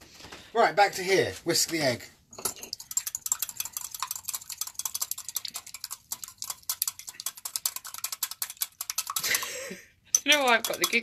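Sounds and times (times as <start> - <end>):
whisk clicking against bowl: 2.7 - 9.4, 10.2 - 11.0.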